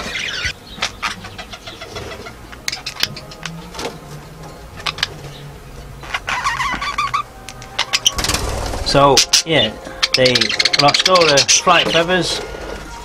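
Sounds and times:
budgerigar squawking: 0.0 - 3.5, 6.0 - 8.2, 8.9 - 12.4
bird chirps and clicks: 2.5 - 3.6.

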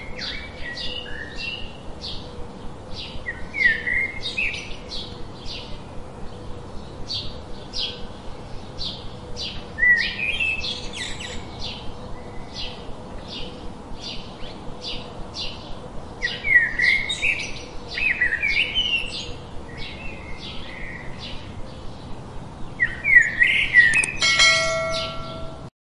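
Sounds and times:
songbird warbling: 22.8 - 25.6.

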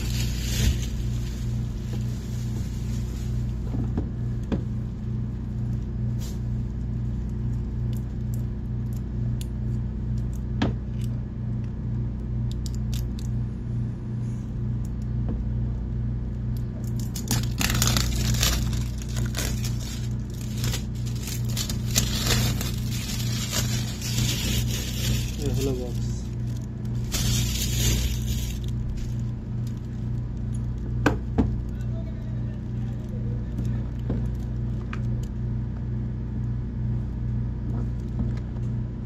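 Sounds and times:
plastic shrink-wrap crinkling: 0.0 - 3.7, 16.8 - 30.8
steady low hum: 0.0 - 39.0.

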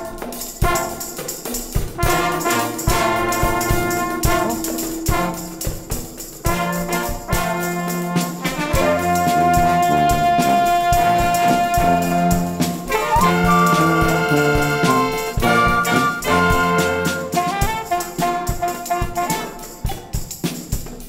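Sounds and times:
saxophones: 0.0 - 20.3
trombone: 0.0 - 20.4
trumpets: 0.0 - 20.4
drum hits: 0.0 - 21.0.

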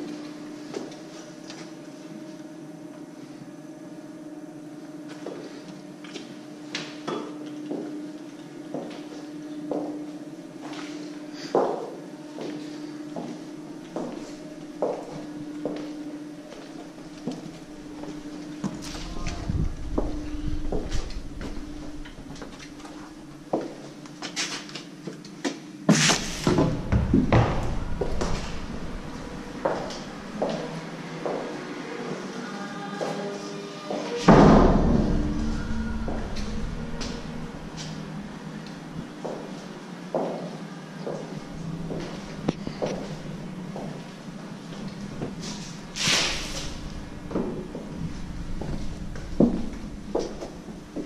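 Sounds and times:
steady low hum: 0.0 - 24.4, 25.7 - 51.0
clattering bangs: 26.2 - 31.0, 34.2 - 39.2.

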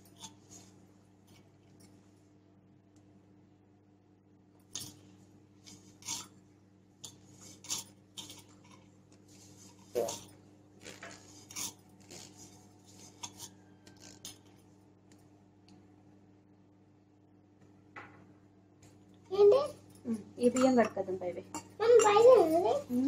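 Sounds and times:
kitchen utensils and dishes clinking: 20.4 - 22.9.

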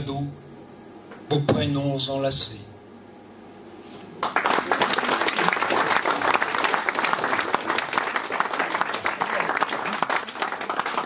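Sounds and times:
audience applauding: 4.2 - 11.0.

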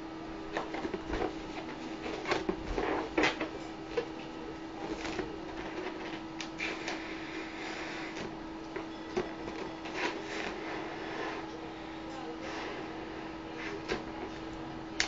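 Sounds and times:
low steady hum: 0.0 - 15.0
rubber balloon handling: 0.5 - 4.2, 4.8 - 11.6.

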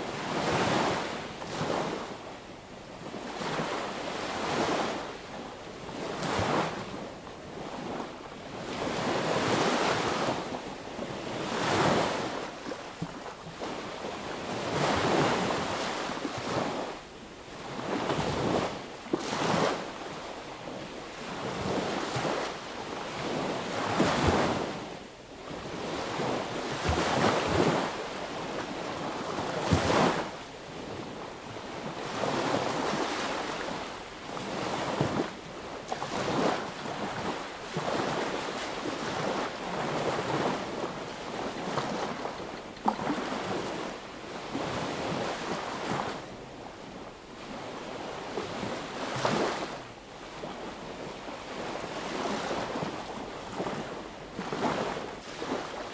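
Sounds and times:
sea waves breaking on beach: 11.2 - 17.0, 17.6 - 24.9, 25.5 - 55.9.

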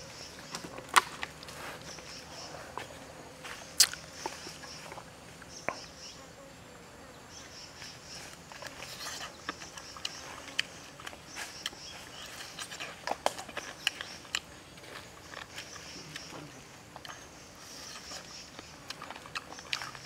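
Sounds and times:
insects chirping: 0.0 - 20.0
chewing and tearing chicken: 17.9 - 20.0.

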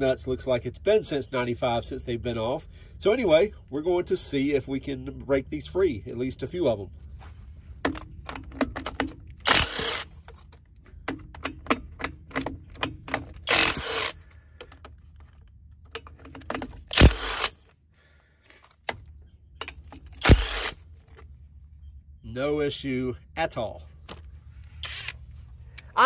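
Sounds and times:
clicks and rattles: 7.8 - 17.7
impact wrench hammering: 11.1 - 14.2, 16.3 - 17.7, 20.2 - 20.8.

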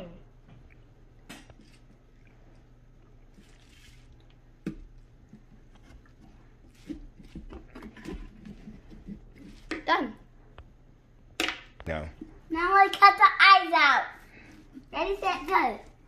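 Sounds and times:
pumpkin pulp being scooped out: 3.3 - 9.8.

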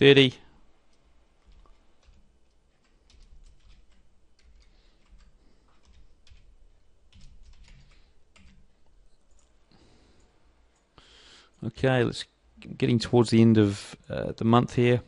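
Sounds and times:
computer keyboard typing: 0.9 - 9.6.

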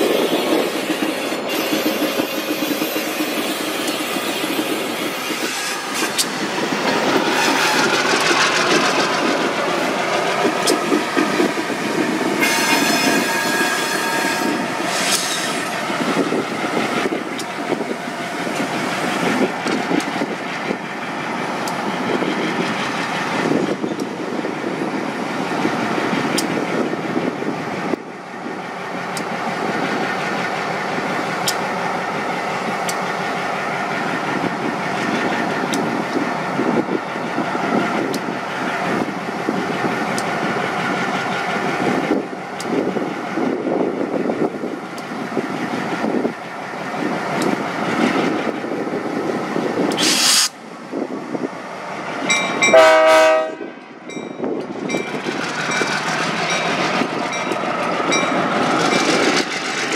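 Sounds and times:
rail cars rumbling: 0.0 - 59.9
wheels clicking on rails: 0.8 - 12.4, 44.2 - 48.8, 54.1 - 59.9.

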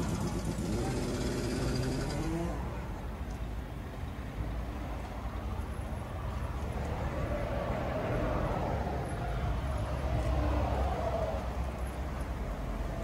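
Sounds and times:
vehicle engine idling: 0.0 - 3.3.

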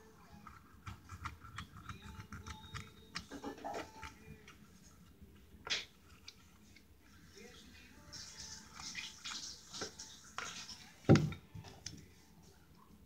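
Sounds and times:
knife clicking through rind: 0.4 - 4.6.

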